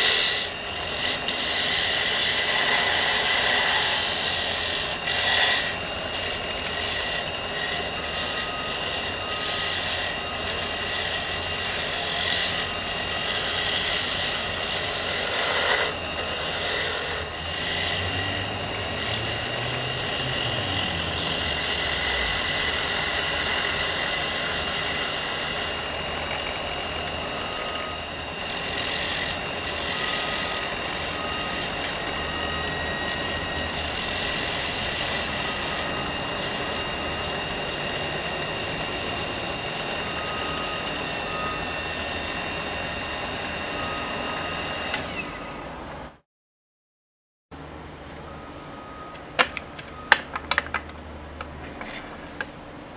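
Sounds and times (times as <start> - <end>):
turning tool cutting wood: 0.0 - 45.4
lathe motor whine: 0.0 - 46.0.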